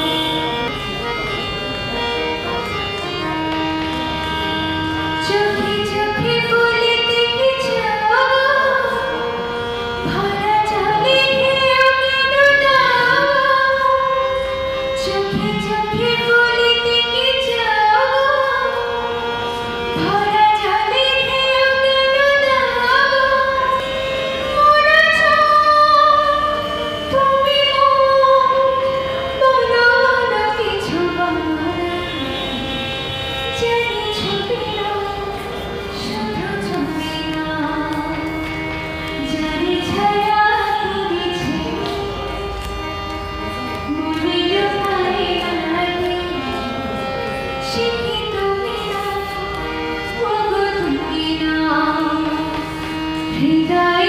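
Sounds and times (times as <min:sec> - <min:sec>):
harmonium: 0:00.0 - 0:54.0
woman singing: 0:05.2 - 0:09.2, 0:10.0 - 0:14.3, 0:15.0 - 0:19.0, 0:19.9 - 0:23.8, 0:24.5 - 0:32.5, 0:33.6 - 0:35.3, 0:36.0 - 0:38.4, 0:39.2 - 0:42.1, 0:43.8 - 0:46.8, 0:47.6 - 0:52.6, 0:53.3 - 0:54.0.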